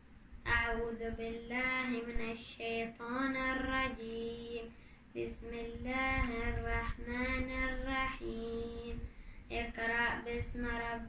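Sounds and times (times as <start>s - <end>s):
boy chanting melodically: 0.4s - 11.0s.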